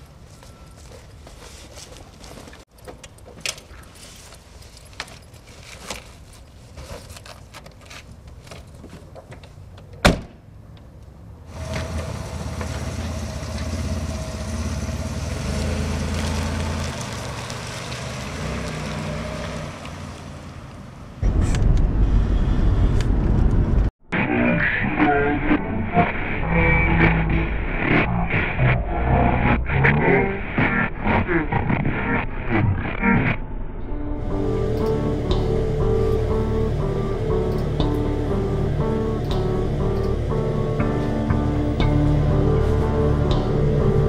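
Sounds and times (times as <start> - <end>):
car driving low rumble: 11.4 - 23.9, 34.1 - 44.0
car engine running: 11.5 - 17.4, 34.2 - 44.0.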